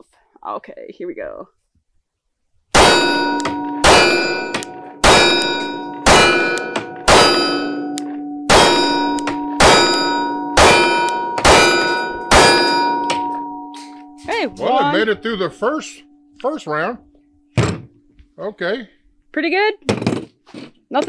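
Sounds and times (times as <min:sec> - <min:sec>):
pistol shots: 0:02.8 - 0:13.5
steel target ringing: 0:02.8 - 0:17.0.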